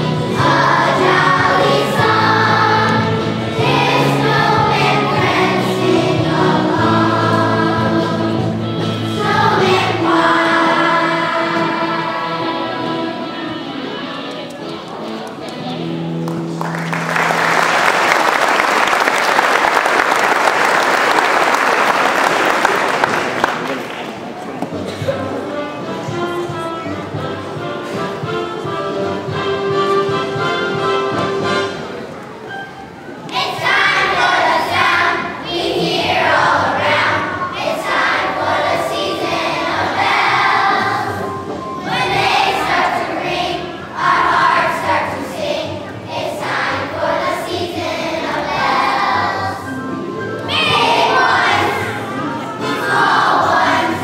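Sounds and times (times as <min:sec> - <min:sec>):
children's choir singing: 0:00.0 - 0:15.7, 0:24.7 - 0:54.0
audience applauding: 0:16.2 - 0:24.4.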